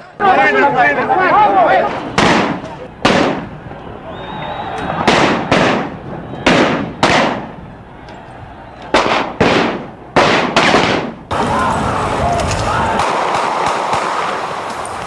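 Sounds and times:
street noise: 0:00.0 - 0:15.0
sharp gunshots: 0:01.8 - 0:03.6, 0:04.9 - 0:07.6, 0:08.9 - 0:11.5, 0:12.9 - 0:14.6.

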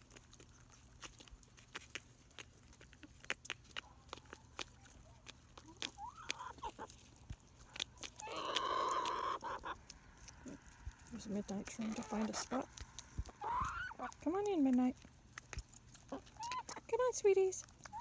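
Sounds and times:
hen squawking: 0:08.2 - 0:09.8, 0:13.3 - 0:14.2.

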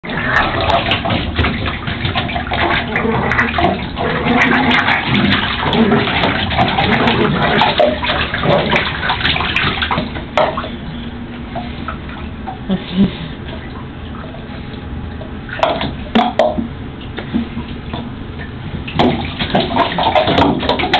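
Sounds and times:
puppy splashing in water: 0:00.0 - 0:10.7, 0:18.8 - 0:20.9
paws scratching on tub: 0:00.2 - 0:10.3.

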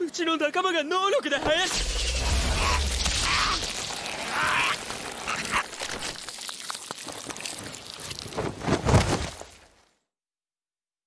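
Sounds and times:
faint crackles: 0:01.5 - 0:09.6.

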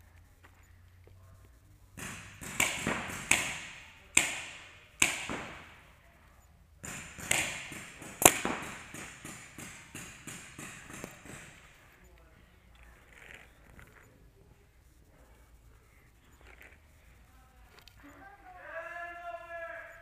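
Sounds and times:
paintball markers firing: 0:01.9 - 0:06.0, 0:06.8 - 0:12.0.

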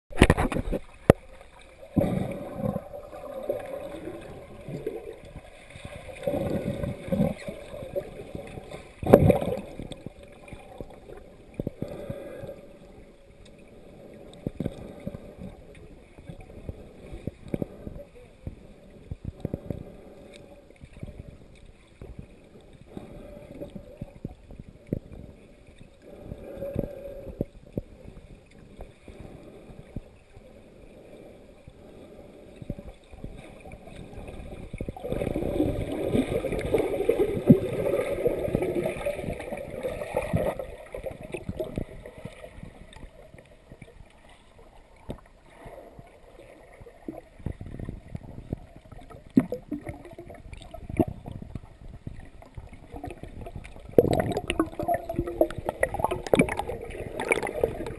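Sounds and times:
splashing and bubbles: 0:00.1 - 0:12.8, 0:32.6 - 0:57.9
muffled underwater sound: 0:00.1 - 0:57.9.

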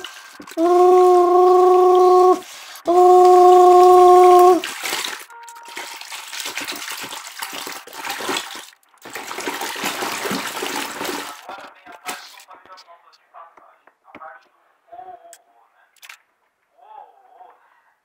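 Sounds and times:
wet cloths rubbed and squeezed: 0:00.0 - 0:12.5
water sloshing and splashing: 0:03.3 - 0:12.4.

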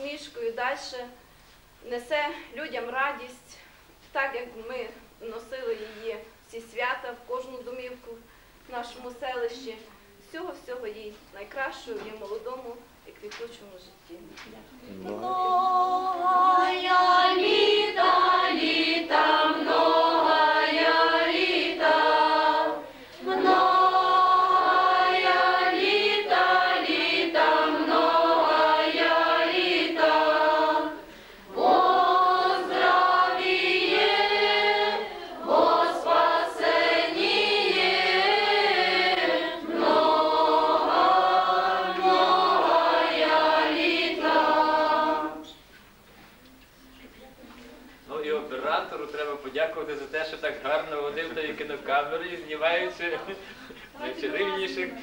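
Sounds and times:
girls singing a carol: 0:14.9 - 0:45.6.

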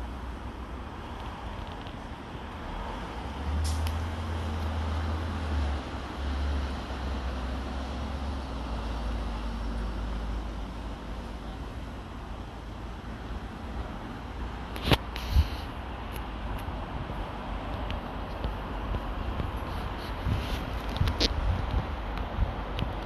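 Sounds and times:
cars and bus driving past: 0:00.0 - 0:23.0
brief hiss: 0:03.6 - 0:04.0, 0:14.8 - 0:15.8.

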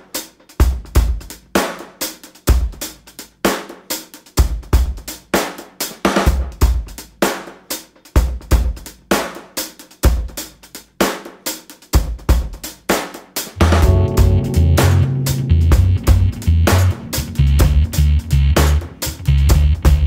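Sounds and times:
drum kit beat: 0:10.1 - 0:20.0.

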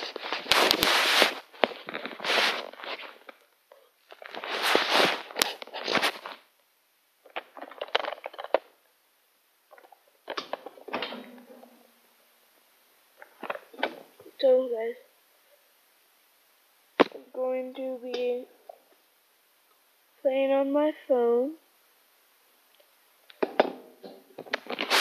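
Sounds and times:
fabric rustling: 0:00.0 - 0:03.4, 0:04.0 - 0:06.5, 0:24.4 - 0:25.0.

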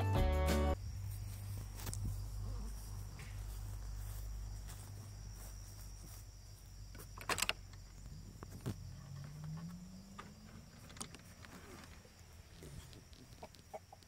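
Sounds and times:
crickets chirring: 0:00.7 - 0:14.0.

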